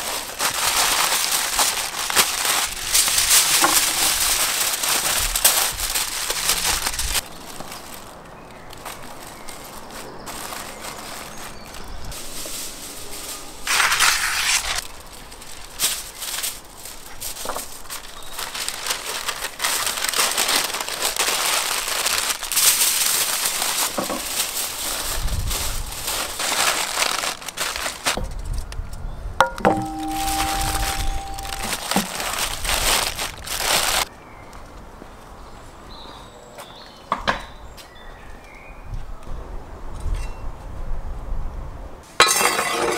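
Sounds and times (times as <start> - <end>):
aluminium foil crinkling: 0.0 - 28.6, 29.4 - 34.1
sharp ringing clink: 29.4 - 31.8.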